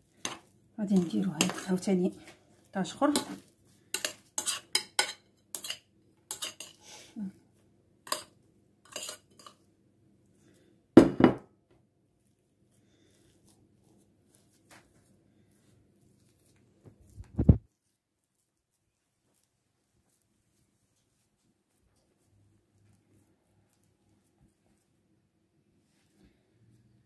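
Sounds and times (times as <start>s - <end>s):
metal spoon clinking on glass bowls: 1.0s - 1.9s, 4.0s - 6.8s, 8.1s - 8.3s, 8.9s - 9.6s
loud knock: 11.0s - 11.4s.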